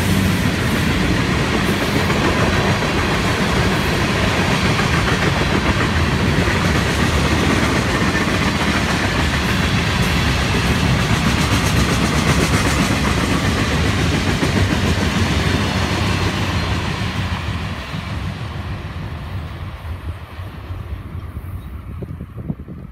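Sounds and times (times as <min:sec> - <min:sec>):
freight train wheels rumbling: 0:00.0 - 0:22.9.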